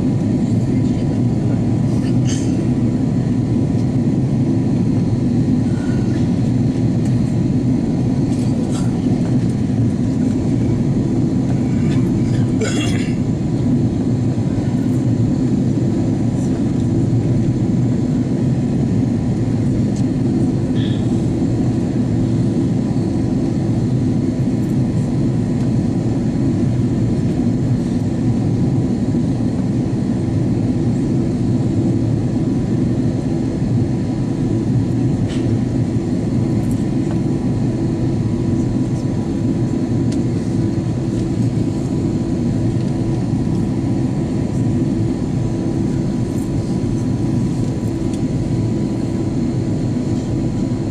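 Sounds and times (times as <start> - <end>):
airplane cabin engine rumble: 0.0 - 50.9.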